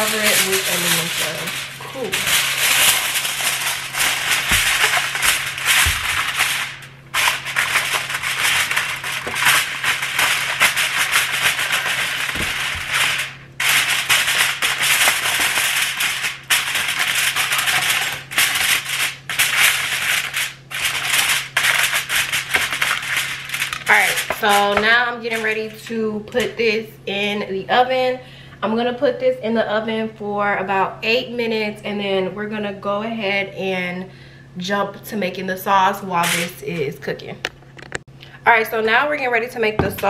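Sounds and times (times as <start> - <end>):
aluminum foil crinkling: 0.0 - 26.5, 36.2 - 36.8.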